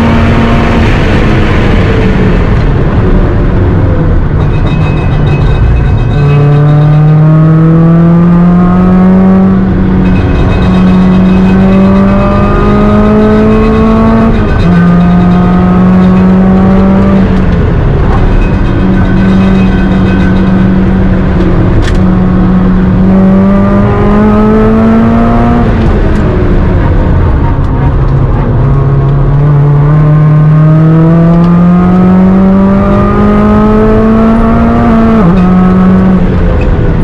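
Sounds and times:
car engine accelerating hard: 0:00.0 - 0:37.0.

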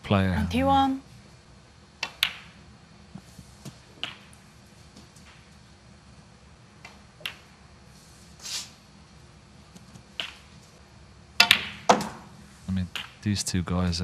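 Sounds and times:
quiet arena hush: 0:00.0 - 0:14.0
snooker balls clicking: 0:02.0 - 0:02.6, 0:03.9 - 0:04.4, 0:09.7 - 0:10.6, 0:11.4 - 0:12.2
brief hiss: 0:08.3 - 0:08.8
cue tip striking ball: 0:11.4 - 0:12.3.

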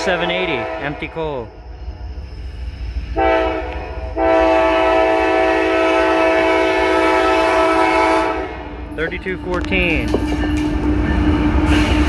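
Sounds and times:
train rumbling: 0:00.0 - 0:12.0
locomotive air horn: 0:00.3 - 0:01.2, 0:03.2 - 0:08.7, 0:11.5 - 0:12.0.

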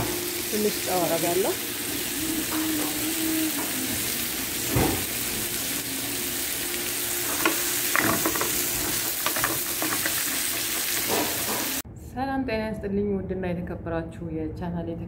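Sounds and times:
vegetables sizzling in a frying pan: 0:00.0 - 0:11.8.

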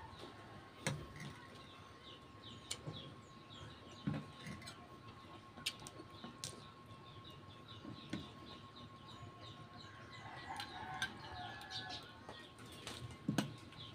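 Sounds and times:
small birds chirping: 0:00.0 - 0:13.9.

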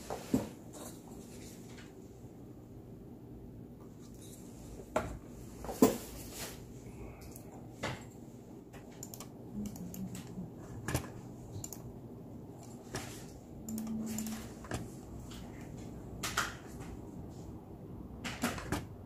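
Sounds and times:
keyboard and mouse clicks: 0:08.8 - 0:11.9, 0:13.6 - 0:15.4.

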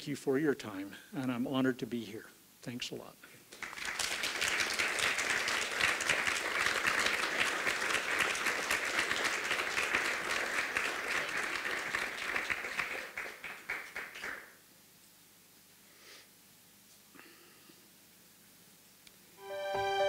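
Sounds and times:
audience applauding: 0:03.5 - 0:14.6.

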